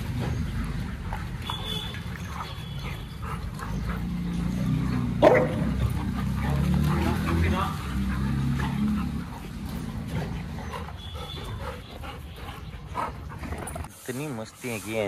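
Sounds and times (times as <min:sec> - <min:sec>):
dogs playing: 0:00.0 - 0:15.0
dog barking: 0:05.0 - 0:05.8.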